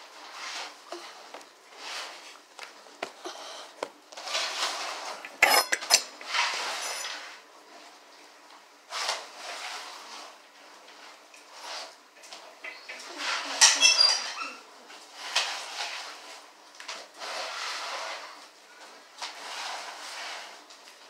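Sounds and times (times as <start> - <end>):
dishes and cutlery clattering: 5.1 - 7.1.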